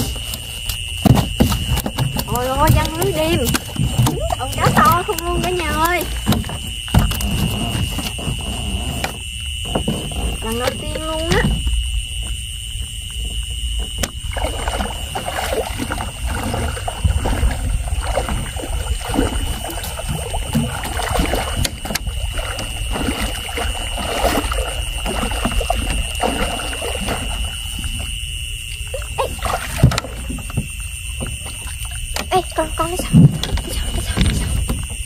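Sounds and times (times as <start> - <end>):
fishing net knocks and rustles: 0.0 - 8.4
water splashing and dripping: 0.0 - 35.0.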